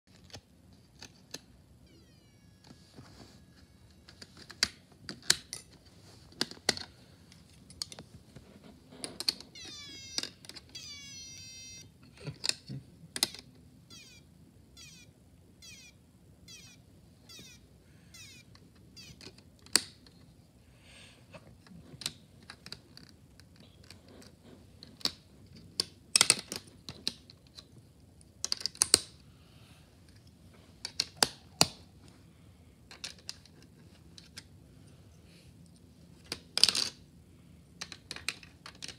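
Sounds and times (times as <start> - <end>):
plastic parts clicking: 0.1 - 1.6, 3.9 - 8.0, 9.0 - 11.1, 12.3 - 13.6, 18.2 - 20.3, 22.0 - 29.2, 30.8 - 31.8, 32.9 - 34.5, 37.8 - 38.9.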